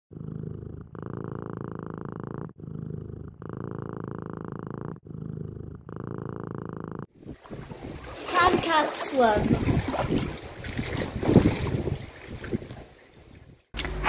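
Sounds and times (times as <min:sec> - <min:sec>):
cat purring: 0:00.1 - 0:07.1.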